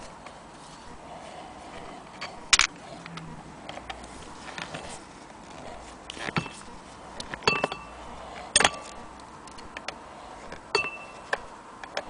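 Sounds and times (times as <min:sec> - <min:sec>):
metal rods clicking and knocking: 0:07.2 - 0:12.0.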